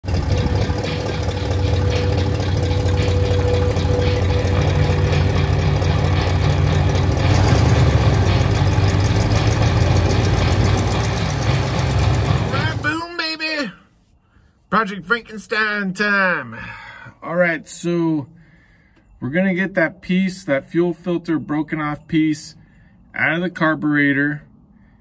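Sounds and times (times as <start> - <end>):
engine running with low rumble: 0.0 - 12.9.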